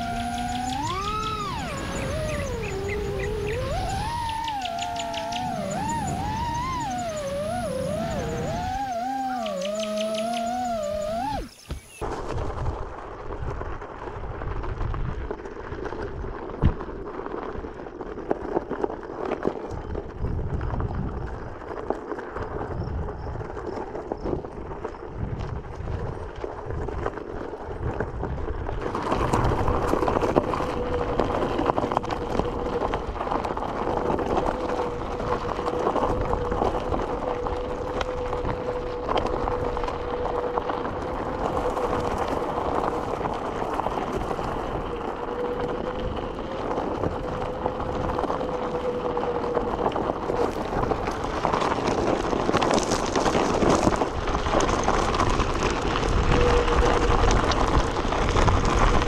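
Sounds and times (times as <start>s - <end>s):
electric motor whine: 0.0s - 11.9s, 29.1s - 59.0s
rushing wind noise: 0.0s - 59.0s
tyres crunching on gravel: 0.0s - 59.0s.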